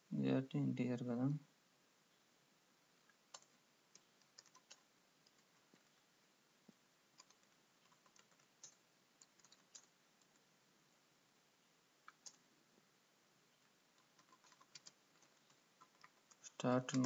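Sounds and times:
keyboard typing: 0:03.0 - 0:05.9, 0:07.2 - 0:10.5, 0:12.0 - 0:12.5, 0:13.9 - 0:17.0.

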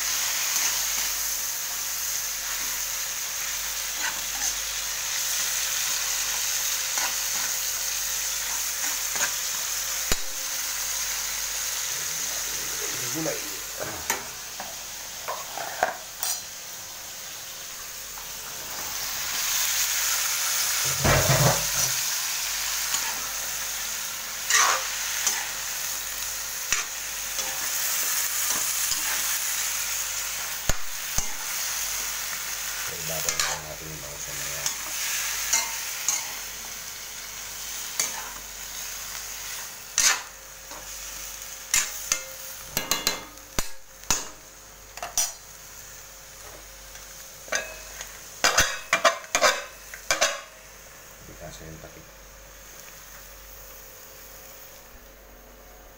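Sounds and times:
vegetables sizzling in a wok: 0:00.0 - 0:55.9
metal ladle scraping a pan: 0:24.5 - 0:25.5, 0:40.0 - 0:40.2.

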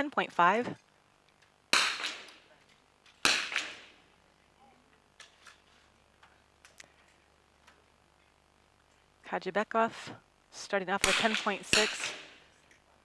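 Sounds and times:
rifle shots with echo: 0:01.7 - 0:02.4, 0:03.2 - 0:04.0, 0:11.0 - 0:12.5.

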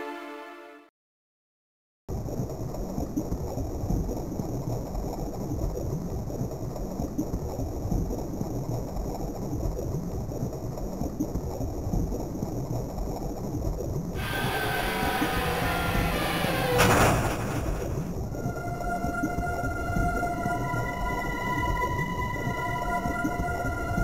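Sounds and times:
low rumbling ambient soundtrack: 0:14.2 - 0:24.0.

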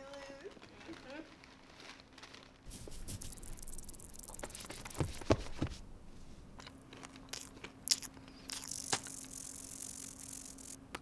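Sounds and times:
paper bags rustling and crinkling: 0:00.0 - 0:03.6
faint steady hum: 0:00.0 - 0:11.0.

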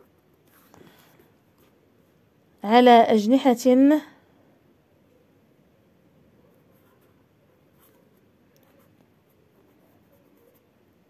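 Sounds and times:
pen scratching on paper: 0:06.4 - 0:10.9.

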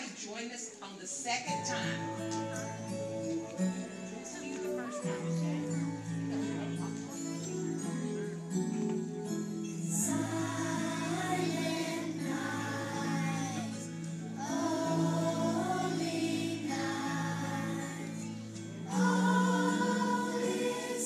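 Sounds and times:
instrumental accompaniment: 0:01.6 - 0:21.0
children's choir singing: 0:09.9 - 0:21.0.

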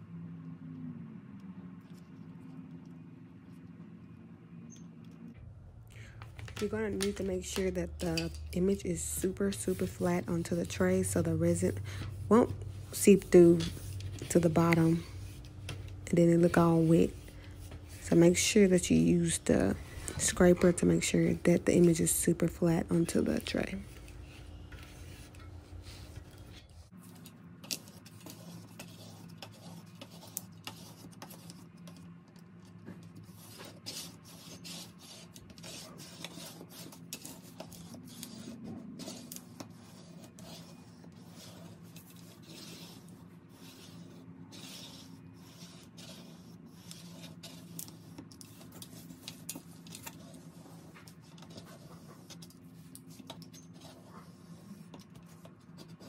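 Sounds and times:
faint low hum: 0:00.0 - 0:56.0
hands rubbing paper: 0:33.0 - 0:56.0.

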